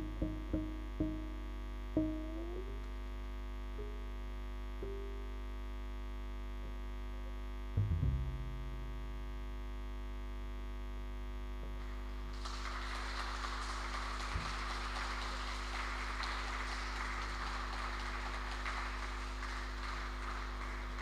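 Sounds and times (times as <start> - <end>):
plucked double bass: 0.0 - 2.9, 3.8 - 4.2, 4.8 - 5.4, 7.7 - 9.2
electrical hum: 0.0 - 12.3.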